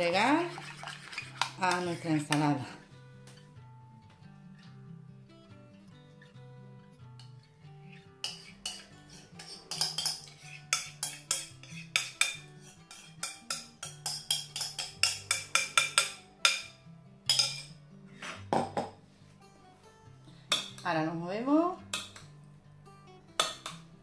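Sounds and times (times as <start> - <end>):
spoon scraping ceramic bowl: 0.0 - 2.7, 8.2 - 16.7
soft guitar music: 0.0 - 24.0.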